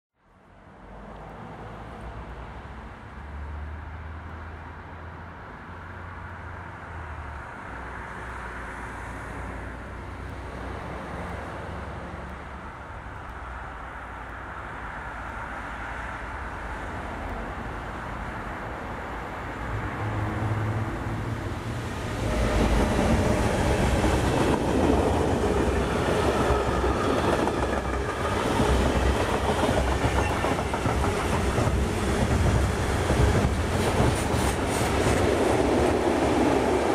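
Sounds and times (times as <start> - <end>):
freight train wagons rumbling over rails: 19.6 - 36.9.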